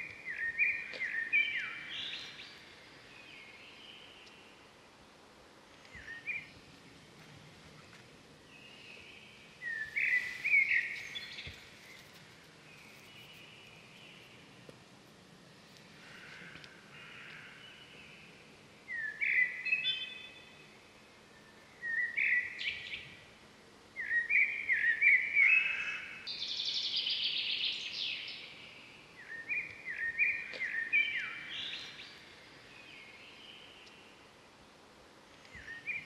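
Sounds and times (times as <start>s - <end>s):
bird chirping: 0.0s - 4.6s, 8.5s - 14.6s, 16.1s - 23.2s, 24.0s - 34.2s.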